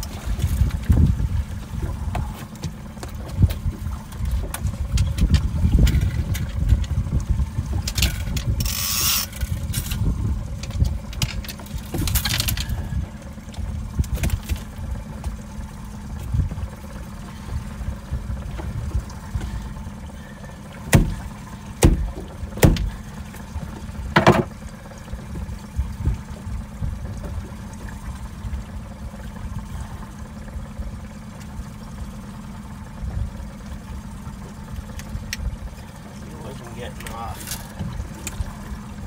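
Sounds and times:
outboard motor running: 0.0 - 39.0
sharp knocks: 20.9 - 21.2, 21.8 - 22.9, 24.1 - 24.5.

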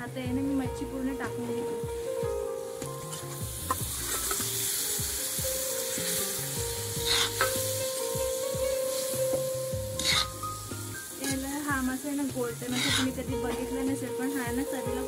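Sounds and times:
fish sizzling in hot oil: 1.9 - 15.0
metal spoon stirring in pan: 3.1 - 4.8, 7.1 - 9.2, 10.0 - 10.4, 11.0 - 13.2.

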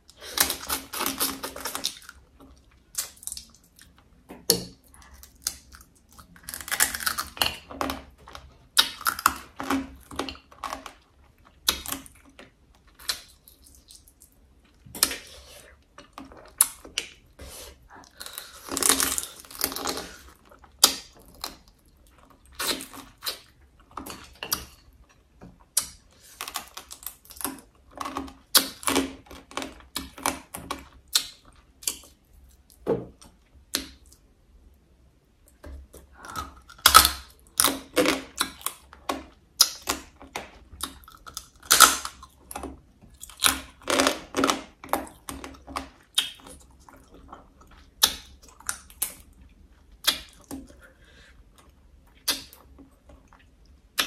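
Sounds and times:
crab shell crunching being chewed: 5.0 - 13.8.

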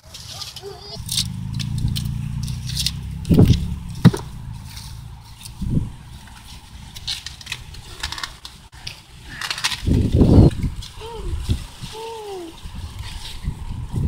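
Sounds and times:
corn leaves rustling: 0.0 - 14.0
stalks snapping: 1.0 - 4.3, 6.3 - 10.1
low rumble: 1.0 - 7.9.

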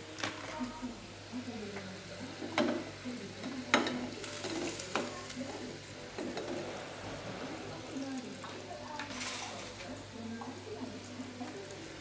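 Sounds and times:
steady sizzle: 0.0 - 12.0
metal utensil scraping a pan: 3.7 - 9.8.

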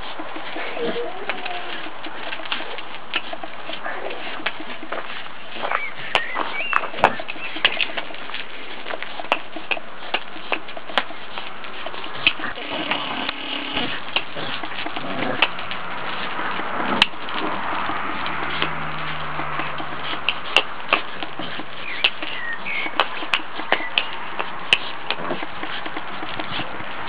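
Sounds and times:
dog paws scuffing on gravel: 0.0 - 27.0
bird chirping: 5.4 - 8.2, 21.4 - 24.3.

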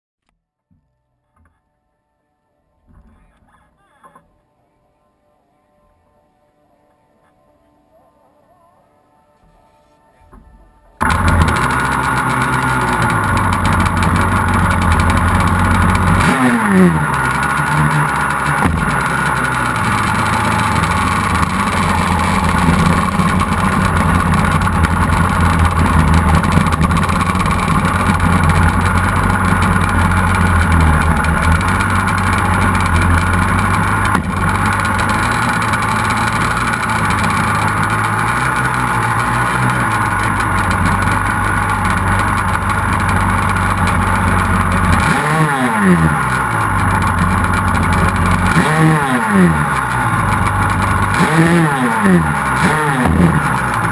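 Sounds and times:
two-stroke engine revving: 11.0 - 53.9.

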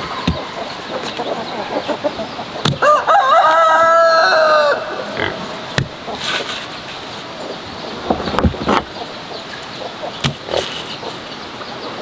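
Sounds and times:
rooster crowing: 2.8 - 5.2.

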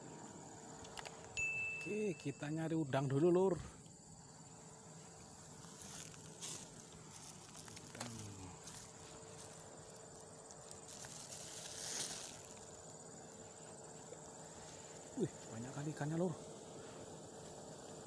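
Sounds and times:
insect chorus buzzing: 0.0 - 18.0
footsteps on dirt: 5.0 - 12.7.

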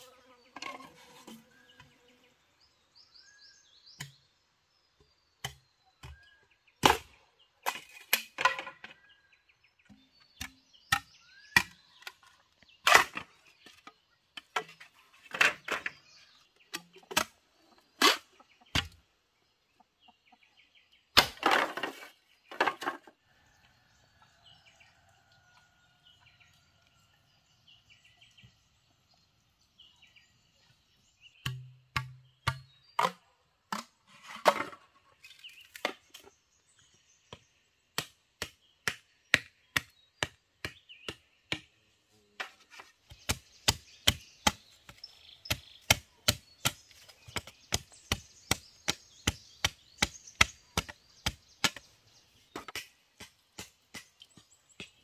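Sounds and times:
blade chopping bamboo: 42.8 - 55.0.

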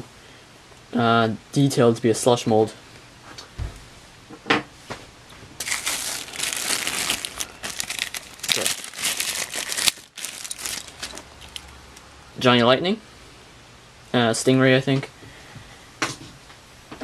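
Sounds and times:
plastic bag crinkling: 5.6 - 12.1.

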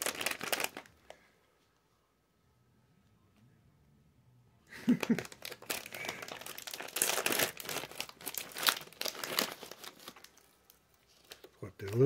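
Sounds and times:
crinkly snack bag crackling: 0.0 - 1.2, 4.8 - 12.0.

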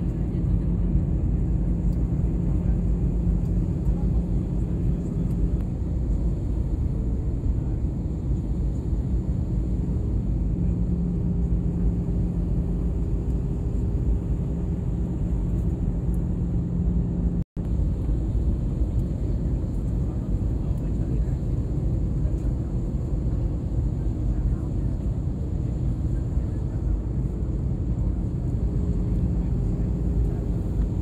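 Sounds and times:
constant cabin hum: 0.0 - 31.0
jet engine rumble: 0.0 - 31.0.

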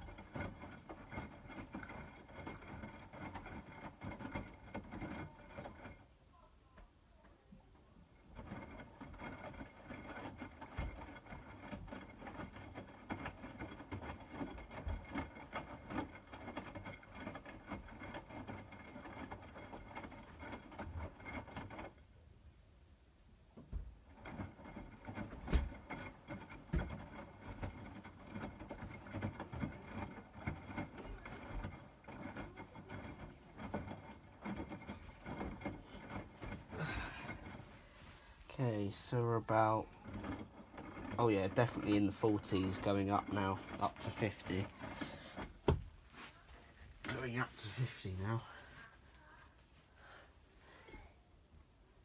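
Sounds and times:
washing machine tumbling load: 23.5 - 49.1.

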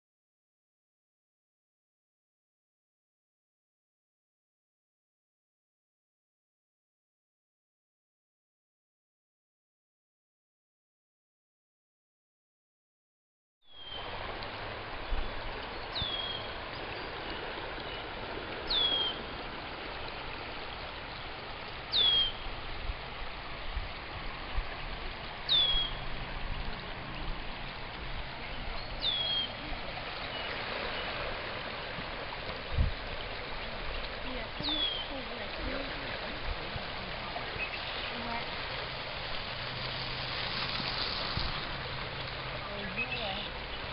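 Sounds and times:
river rushing: 13.7 - 43.9
bird downward-sliding call: 29.0 - 29.7.

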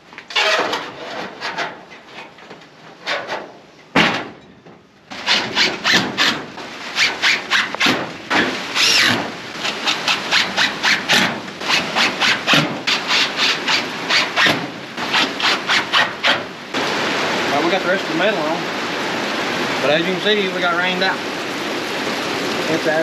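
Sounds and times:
rasping scraping on metal: 5.2 - 6.4, 8.8 - 16.4.

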